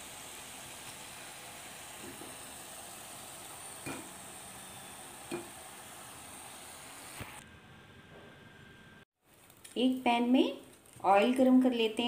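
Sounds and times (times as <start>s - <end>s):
food deep-frying in hot oil: 0.0s - 7.4s.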